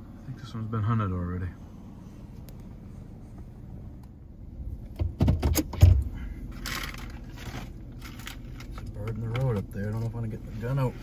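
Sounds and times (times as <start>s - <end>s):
knocks and rattles: 4.9s - 7.2s.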